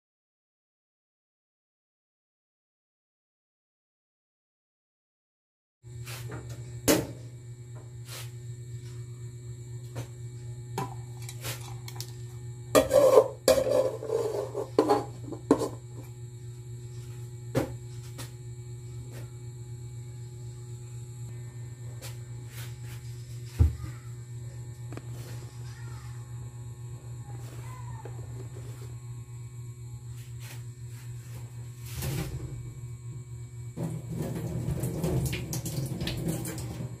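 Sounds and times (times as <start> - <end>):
low hum: 8.6 - 37.0.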